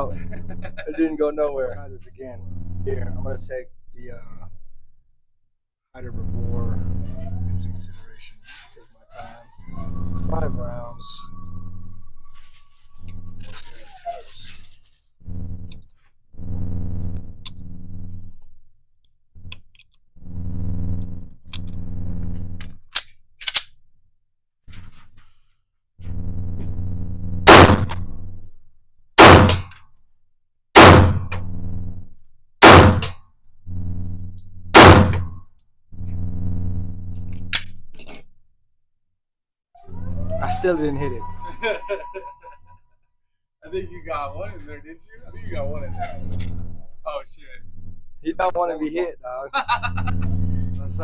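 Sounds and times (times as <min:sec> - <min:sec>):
low steady hum: 0:00.0 - 0:05.0, 0:06.0 - 0:15.8, 0:16.4 - 0:18.6, 0:19.4 - 0:22.8, 0:26.0 - 0:28.6, 0:33.7 - 0:35.4, 0:43.6 - 0:51.0.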